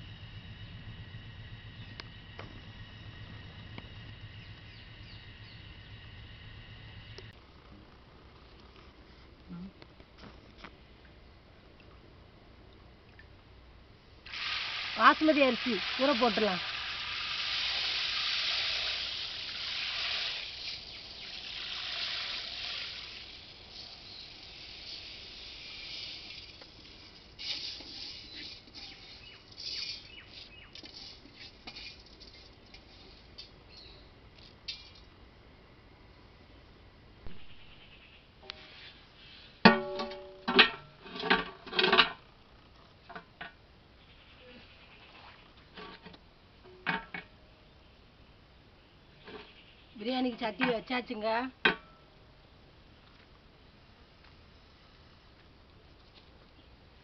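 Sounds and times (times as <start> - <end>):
metal pot clanging on burner stand: 39.7 - 42.2.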